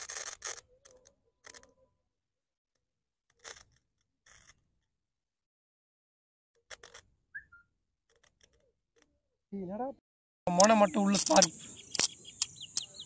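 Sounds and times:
crackling sparks from shorted wires: 10.6s - 12.9s.

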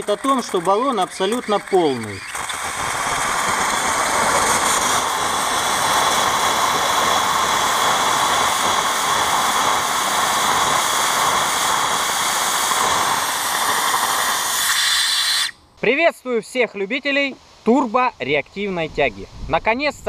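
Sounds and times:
gas hissing from valve: 0.0s - 15.6s.

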